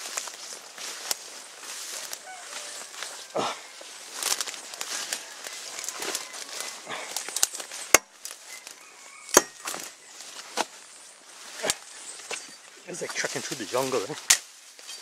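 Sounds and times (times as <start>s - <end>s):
rustling undergrowth: 0.0s - 15.0s
blade chopping branches: 5.9s - 8.4s, 9.3s - 10.7s, 13.7s - 15.0s.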